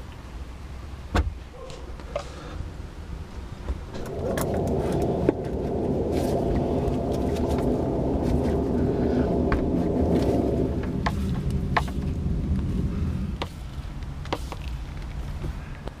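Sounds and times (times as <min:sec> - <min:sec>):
motor rumble: 0:03.7 - 0:15.7.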